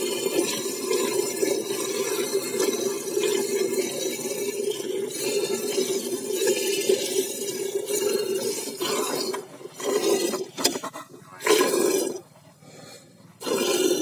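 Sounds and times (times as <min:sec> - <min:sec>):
milk squirting into a steel bucket: 0:00.0 - 0:10.8.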